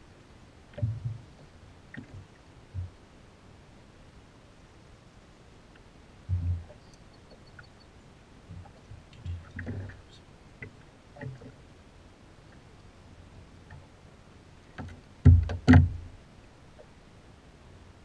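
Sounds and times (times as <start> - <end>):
fish handled in a boat: 8.4 - 16.2.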